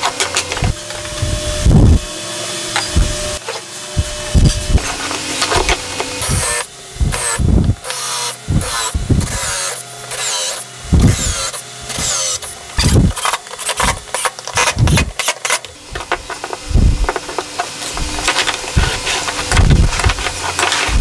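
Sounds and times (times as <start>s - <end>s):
cordless drill driving screws: 6.2s - 16.2s.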